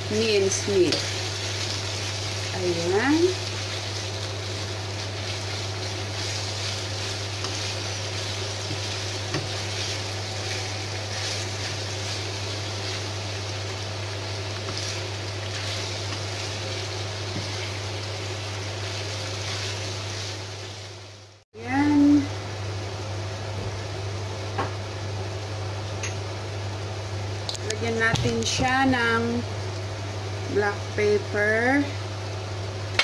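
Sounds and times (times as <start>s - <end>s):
meat sizzling in a pan: 0.0s - 23.0s
wooden spoon scraping a pan: 0.7s - 13.3s, 14.6s - 18.0s, 18.8s - 20.4s.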